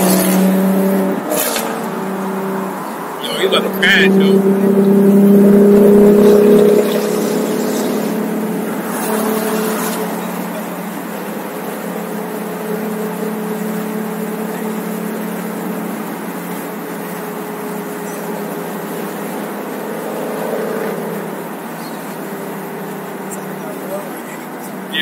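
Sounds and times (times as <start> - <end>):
car engine drone: 0.0 - 25.0.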